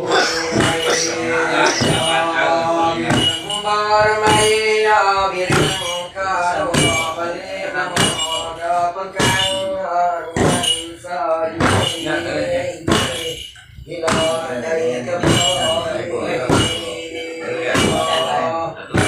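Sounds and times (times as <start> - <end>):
man chanting: 0.0 - 19.0
wooden staff stamping on floor: 0.5 - 2.2, 5.5 - 6.0, 10.4 - 10.9, 11.6 - 12.2, 12.9 - 13.4, 14.0 - 14.5, 15.2 - 17.0.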